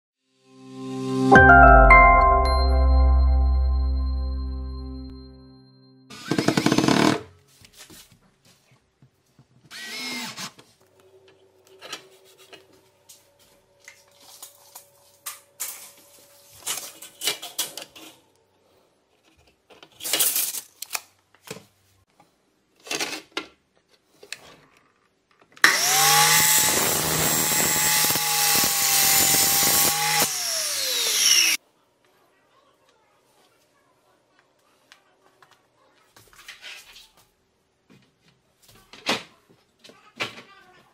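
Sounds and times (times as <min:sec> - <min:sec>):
mitre saw cutting metal: 0:06.1 - 0:07.2, 0:25.7 - 0:31.6.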